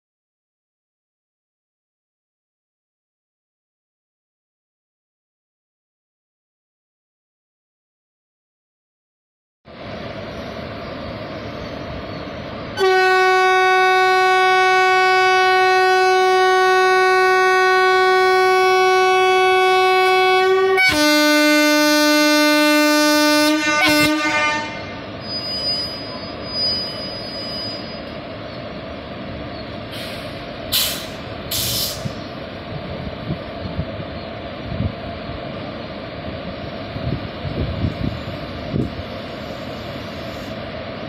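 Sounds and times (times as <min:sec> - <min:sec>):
locomotive running noise: 0:09.7 - 0:41.0
locomotive horn: 0:12.8 - 0:25.1
short hisses: 0:29.9 - 0:32.2.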